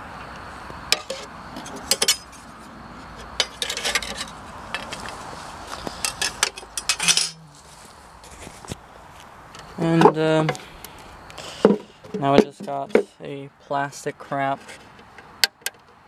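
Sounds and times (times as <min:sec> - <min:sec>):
hard plastic parts clicking and clacking: 0:03.4 - 0:05.2, 0:06.0 - 0:07.4, 0:11.6 - 0:13.2, 0:14.6 - 0:16.0.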